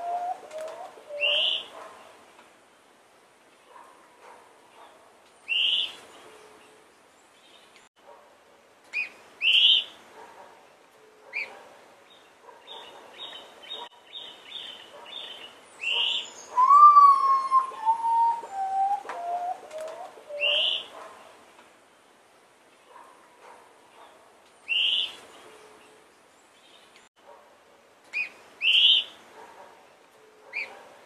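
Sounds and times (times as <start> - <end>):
birds chirping: 12.1 - 21.4
potoo whistling: 16.5 - 19.7
repeated high bird notes: 16.6 - 19.6.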